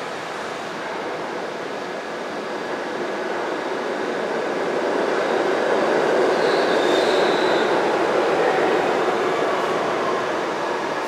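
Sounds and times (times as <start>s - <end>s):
subway train rushing hum: 0.0s - 11.0s.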